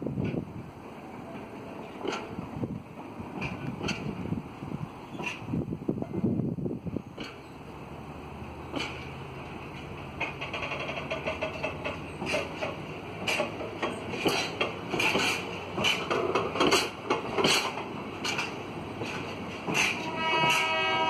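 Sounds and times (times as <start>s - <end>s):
train wheels clanking on track: 0.0s - 21.0s
train horn chord: 20.0s - 21.0s.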